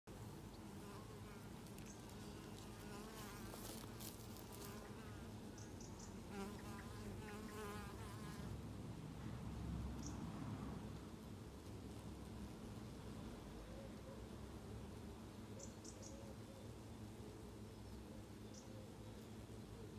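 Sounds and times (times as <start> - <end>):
birds singing: 15.6 - 16.8.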